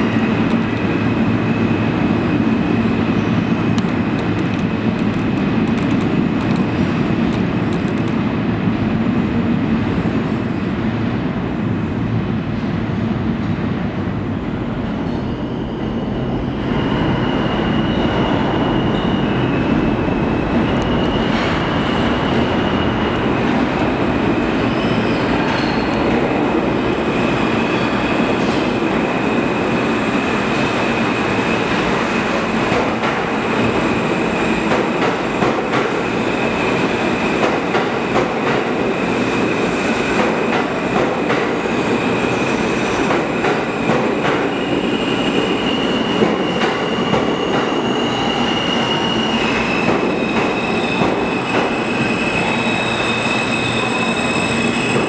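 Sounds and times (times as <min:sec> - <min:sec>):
subway train rumbling on rails: 0:00.0 - 0:55.0
high-pitched wheel squeal: 0:44.4 - 0:55.0.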